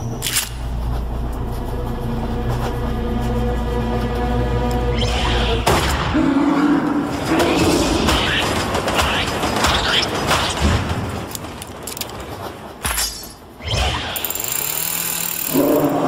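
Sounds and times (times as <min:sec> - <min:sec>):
music: 0:00.0 - 0:06.4.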